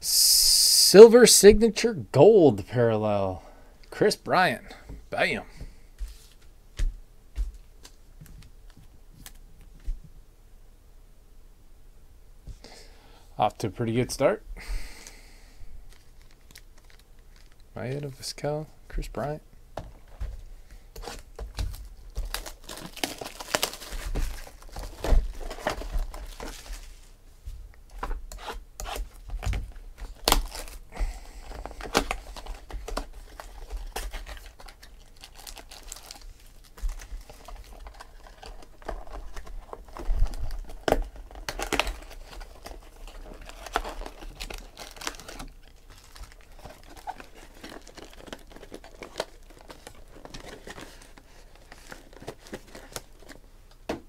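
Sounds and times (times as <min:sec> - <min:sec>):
plastic wrap tearing and crinkling: 0:15.9 - 0:18.4, 0:21.0 - 0:27.1, 0:28.0 - 0:53.5
foil packs rustling: 0:15.9 - 0:19.4, 0:20.0 - 0:27.2, 0:29.0 - 0:53.5.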